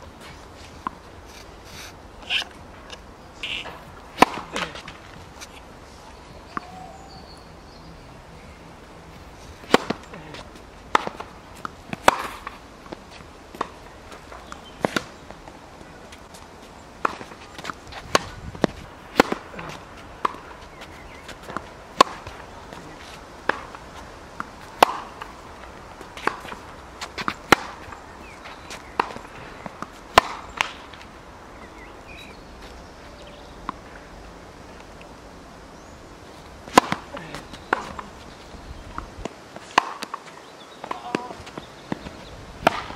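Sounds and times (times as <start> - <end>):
tennis balls bouncing on hard court: 2.2 - 5.6, 9.6 - 16.4, 17.0 - 31.1, 36.6 - 42.9
tennis balls struck by rackets: 2.2 - 5.7, 9.6 - 32.4, 36.4 - 42.9.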